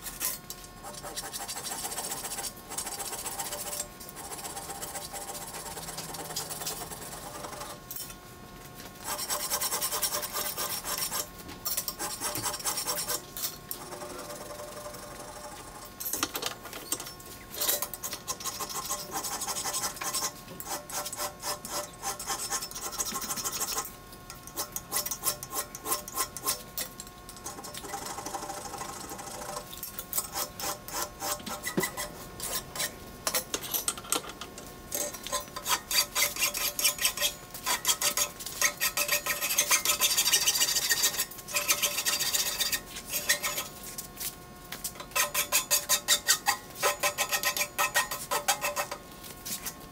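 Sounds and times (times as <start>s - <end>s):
file rasping on metal: 0.0s - 7.8s, 9.0s - 13.2s, 17.6s - 23.9s, 24.5s - 26.6s, 30.2s - 33.0s, 35.0s - 43.8s, 45.0s - 49.0s.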